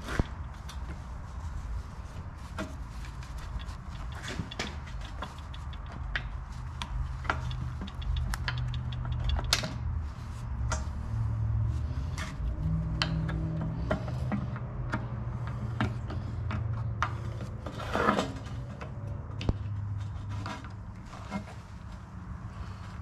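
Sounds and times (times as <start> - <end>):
metal parts clicking and tapping: 3.1 - 9.9.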